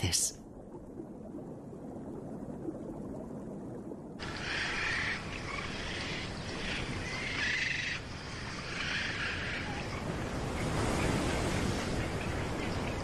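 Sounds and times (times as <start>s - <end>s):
hiss of wind and sea: 0.0s - 13.0s
seabirds calling: 4.2s - 13.0s.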